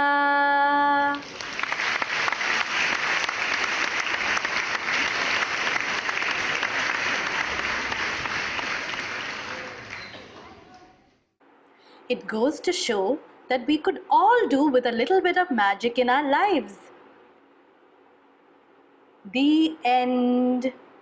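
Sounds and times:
audience applauding: 1.2s - 10.9s.

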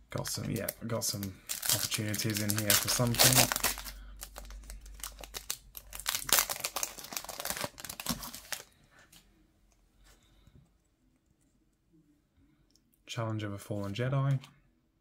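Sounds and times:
foil wrapper crinkling and tearing: 0.2s - 8.7s.

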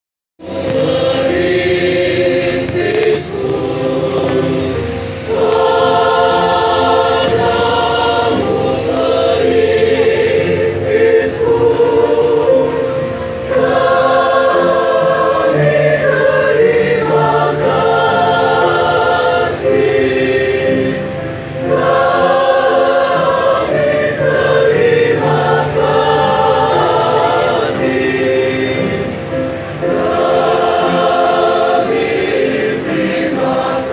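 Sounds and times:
large choir singing: 0.4s - 33.9s.

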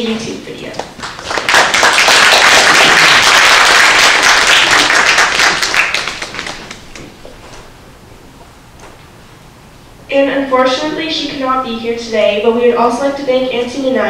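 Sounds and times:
audience applause: 1.0s - 6.8s.

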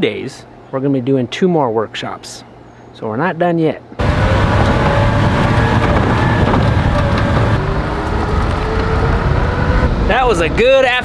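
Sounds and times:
truck engine running: 4.0s - 10.5s
loud driving noise: 4.0s - 11.0s.

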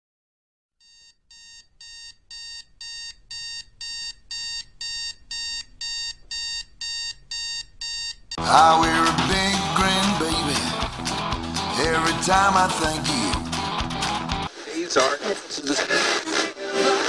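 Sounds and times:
alarm clock beeping: 0.8s - 8.3s.

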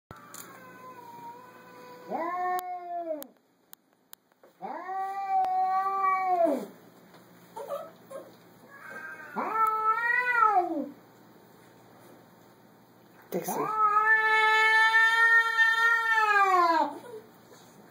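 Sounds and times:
cat yowling: 0.1s - 3.3s, 8.7s - 11.0s, 13.5s - 17.2s.

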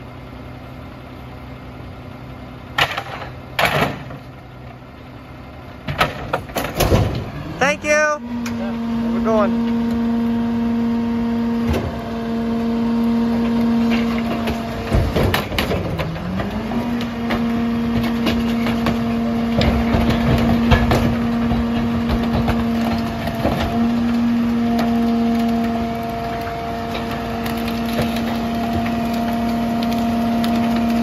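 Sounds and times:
truck engine running: 0.0s - 31.0s
wood cracking and crunching: 11.6s - 31.0s
packer blade compacting trash: 13.3s - 31.0s.

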